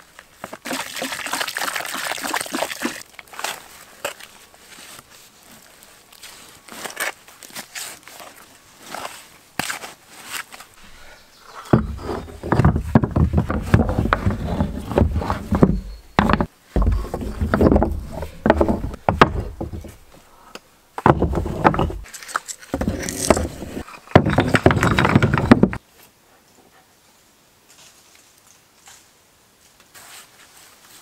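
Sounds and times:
stones clacking together: 11.7s - 20.1s, 21.0s - 25.8s
stones thudding on wooden boards: 11.7s - 20.1s, 21.0s - 22.1s, 22.7s - 25.8s.

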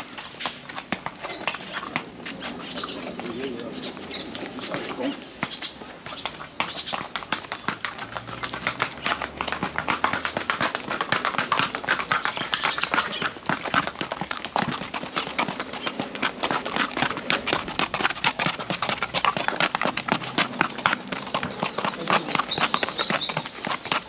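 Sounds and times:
horse hooves on paving: 0.0s - 24.0s.

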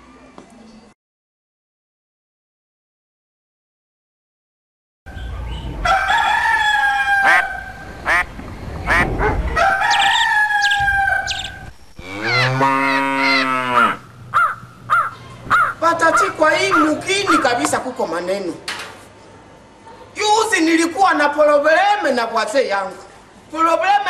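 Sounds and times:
rooster crowing: 5.5s - 8.2s, 8.9s - 17.6s
short clucking calls: 13.3s - 17.6s.

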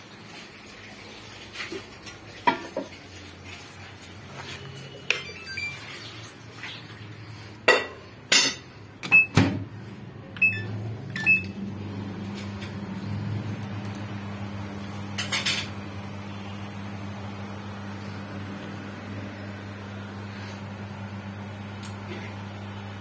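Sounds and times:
microwave low mains hum: 0.0s - 23.0s
microwave short beeps: 5.0s - 6.0s, 9.1s - 9.4s, 10.4s - 11.6s.

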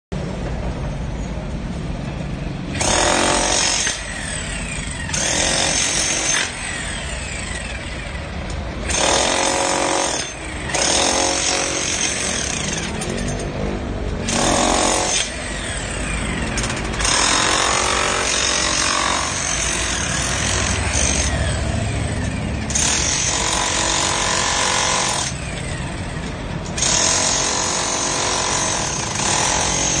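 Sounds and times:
demolition hammer breaking concrete: 5.1s - 6.6s, 8.9s - 13.4s, 14.3s - 15.4s, 22.7s - 25.4s, 26.8s - 30.0s.

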